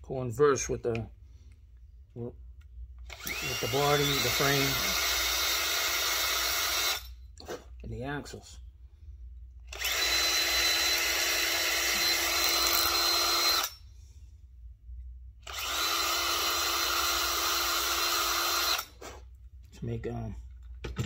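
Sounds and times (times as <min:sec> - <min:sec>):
power drill cutting metal: 0:03.1 - 0:07.1, 0:09.7 - 0:13.8, 0:15.5 - 0:18.9.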